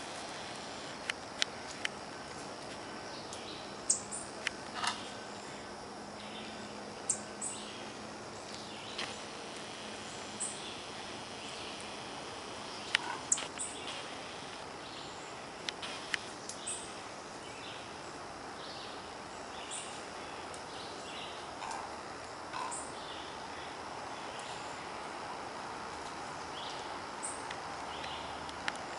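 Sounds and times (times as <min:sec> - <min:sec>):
steady background hiss: 0:00.0 - 0:28.9
small birds chirping: 0:12.6 - 0:25.0, 0:26.0 - 0:28.9.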